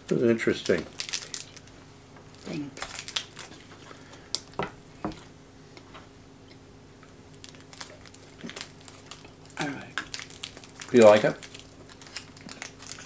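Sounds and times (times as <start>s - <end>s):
low steady hum: 0.0s - 13.0s
paper wrapper rustling: 0.5s - 1.7s, 2.4s - 4.4s, 7.4s - 13.0s.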